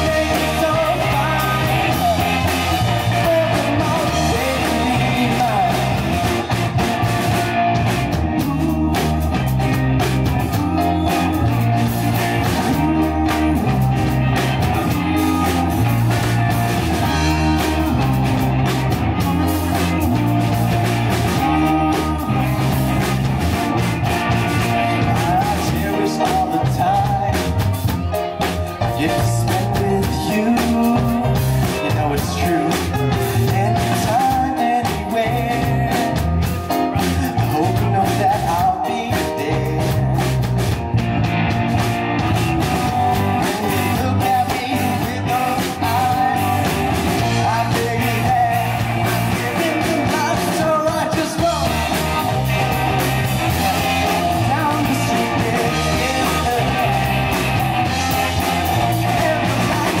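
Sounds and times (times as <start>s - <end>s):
lead vocal singing: 0.0s - 7.0s, 7.8s - 28.1s, 28.8s - 40.4s, 42.9s - 60.0s
bass guitar: 0.0s - 60.0s
drum kit: 0.0s - 60.0s
electric guitar: 0.0s - 60.0s
keyboard: 0.0s - 60.0s.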